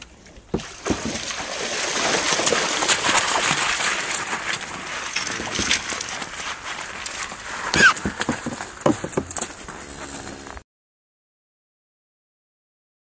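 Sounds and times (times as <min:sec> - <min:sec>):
water splashing against canoe hull: 0:00.5 - 0:09.7.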